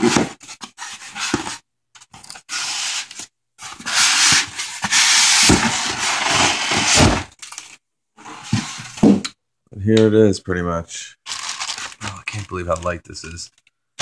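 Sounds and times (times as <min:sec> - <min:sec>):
styrofoam scraping against cardboard: 0:02.5 - 0:07.3.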